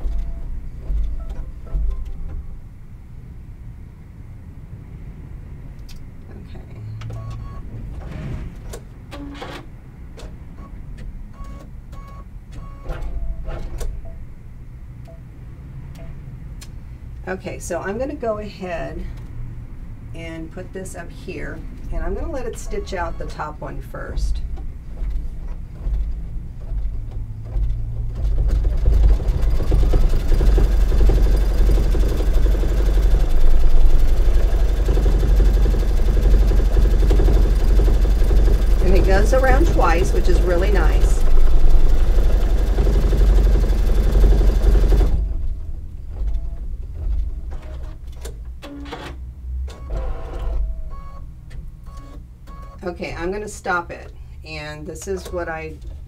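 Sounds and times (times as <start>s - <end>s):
embroidery arm whirring: 25.0s - 47.8s.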